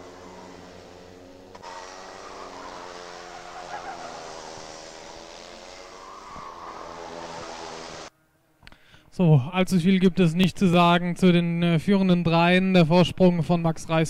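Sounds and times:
kart engines revving: 0:00.0 - 0:08.1.

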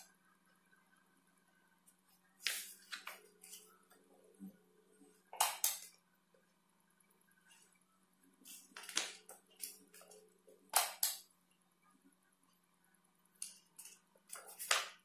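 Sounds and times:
book pages rustling: 0:02.4 - 0:03.8, 0:14.3 - 0:15.0.

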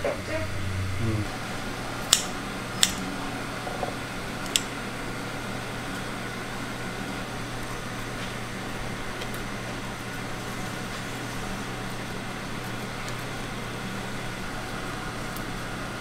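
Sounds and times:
deep low hum: 0:00.0 - 0:01.3
steady mechanical hum: 0:00.0 - 0:16.0.

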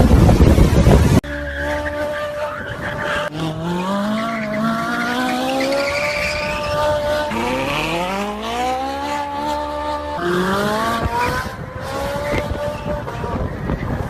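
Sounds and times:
gear upshifts: 0:00.0 - 0:14.0
sports car engine accelerating: 0:00.0 - 0:14.0.

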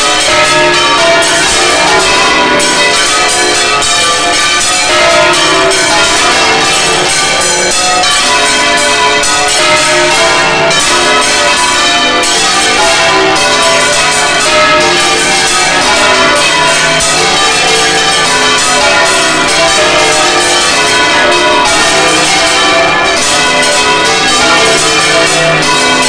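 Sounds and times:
church bells ringing: 0:00.0 - 0:26.0.

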